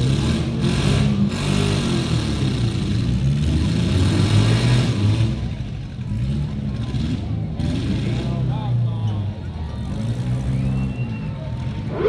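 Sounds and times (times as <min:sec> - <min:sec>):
car engines revving: 0:00.0 - 0:12.0.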